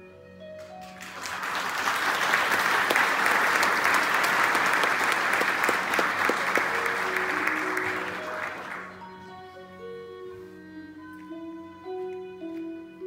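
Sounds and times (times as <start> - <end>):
audience applauding: 0.6 - 9.0.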